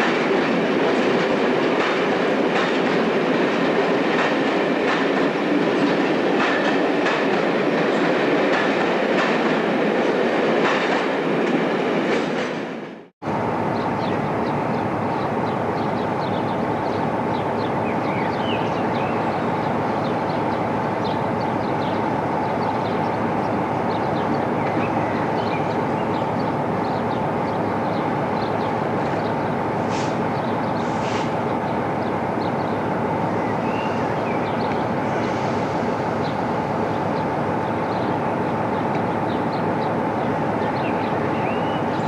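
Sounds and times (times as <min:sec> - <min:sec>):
short hisses: 0:29.9 - 0:30.2, 0:30.9 - 0:31.4.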